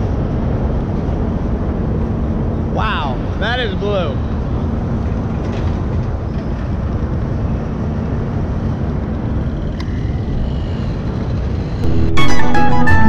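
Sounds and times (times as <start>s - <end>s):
constant rushing noise: 0.0s - 13.0s
ship engines rumbling: 0.0s - 13.0s
music: 11.8s - 13.0s.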